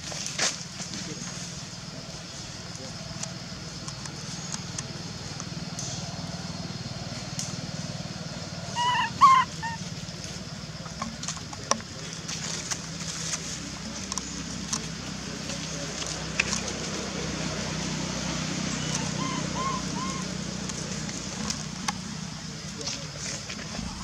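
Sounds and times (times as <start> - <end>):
high squeaky animal calls: 8.7 - 10.0, 18.6 - 20.5
steady low hum: 19.6 - 24.0.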